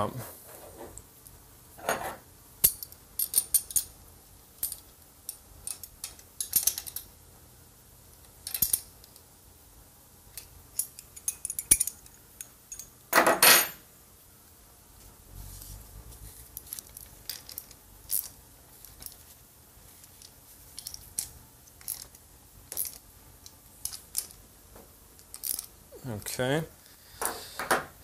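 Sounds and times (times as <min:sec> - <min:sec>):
small metal parts clinking: 0:02.6 - 0:03.9, 0:04.6 - 0:07.1, 0:08.4 - 0:09.2, 0:10.3 - 0:13.8, 0:16.6 - 0:19.3, 0:20.0 - 0:24.4, 0:25.2 - 0:26.3
metal parts clattering: 0:16.6 - 0:19.2, 0:20.0 - 0:23.0, 0:25.2 - 0:26.3.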